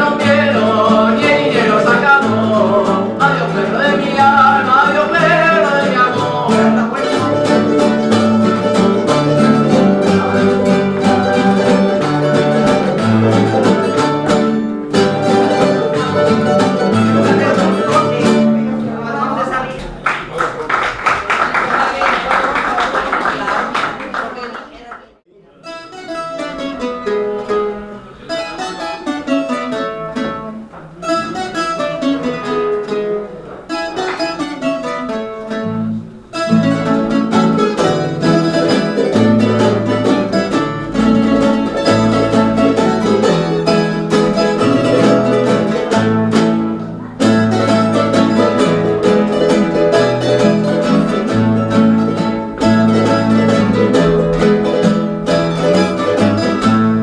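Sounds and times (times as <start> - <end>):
folk string ensemble playing: 0.0 - 19.2, 25.8 - 57.0
strong bass line: 48.2 - 57.0.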